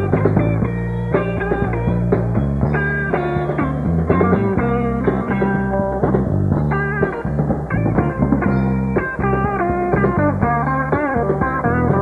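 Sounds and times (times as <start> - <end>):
bass: 0.0 - 12.0
drums: 0.0 - 12.0
electric guitar blues lead: 0.0 - 12.0.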